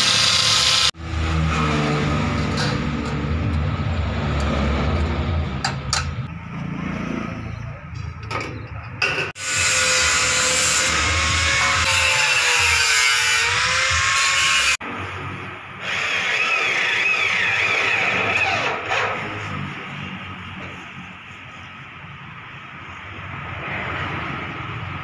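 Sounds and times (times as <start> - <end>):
power tool whining: 0.0 - 1.0.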